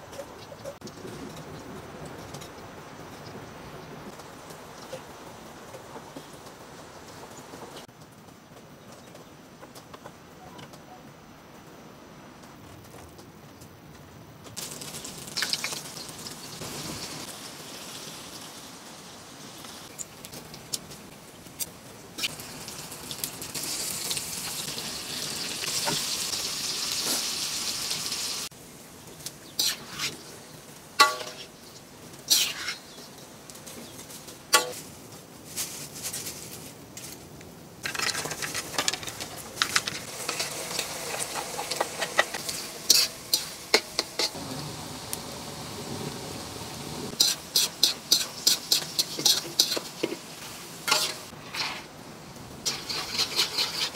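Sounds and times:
hot oil sizzling: 14.6s - 34.9s, 37.8s - 53.9s
metal spatula scraping a wok: 29.6s - 30.3s, 31.0s - 31.6s, 32.3s - 33.0s, 37.8s - 44.4s, 47.1s - 51.9s, 52.7s - 53.9s.

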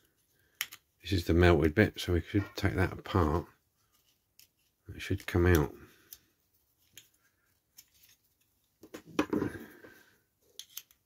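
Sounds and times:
small model parts clicking: 0.5s - 0.9s, 10.5s - 11.0s.

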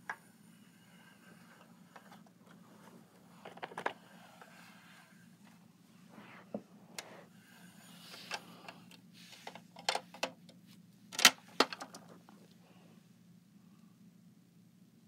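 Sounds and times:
plastic clacks: 9.4s - 12.4s.

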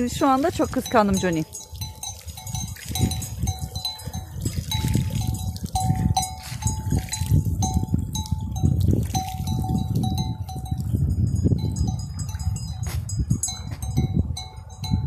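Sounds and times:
sheep bells clinking: 0.0s - 15.0s.

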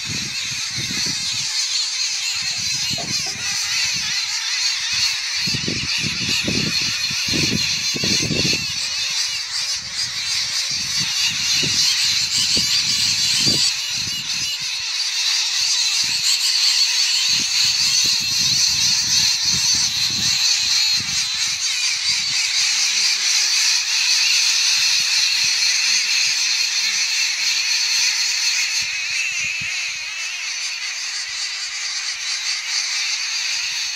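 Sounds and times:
wind buffeting microphone: 0.0s - 1.6s, 2.4s - 4.1s, 5.0s - 14.6s, 17.3s - 22.8s
many birds chattering: 0.0s - 33.9s.

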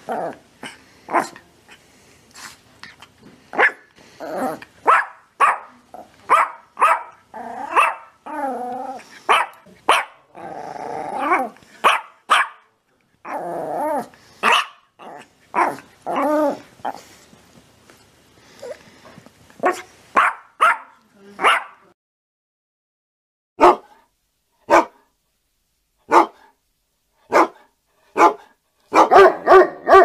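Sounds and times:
dog growl-barks: 0.0s - 1.8s, 3.5s - 12.6s, 13.2s - 17.1s, 19.6s - 21.8s, 23.6s - 24.0s, 26.1s - 26.5s, 27.3s - 30.0s
dog barking: 1.1s - 1.4s, 3.6s - 3.9s, 4.8s - 8.2s, 9.3s - 10.3s, 11.8s - 12.7s, 14.4s - 14.9s, 19.6s - 21.8s, 23.6s - 24.0s, 24.7s - 25.1s, 26.1s - 26.5s, 27.3s - 30.0s.

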